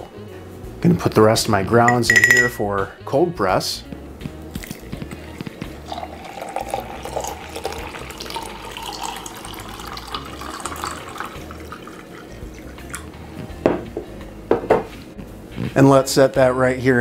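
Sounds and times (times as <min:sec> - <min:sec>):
water pouring into glass jar: 0:04.6 - 0:13.1.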